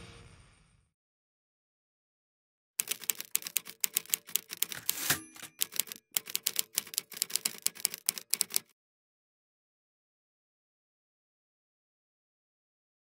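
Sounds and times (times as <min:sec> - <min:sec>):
typewriter keys clacking: 0:02.8 - 0:08.7.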